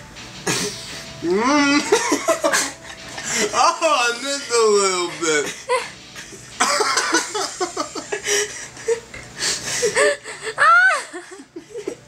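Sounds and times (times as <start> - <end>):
breathless wheezing laughter: 5.4 - 12.0.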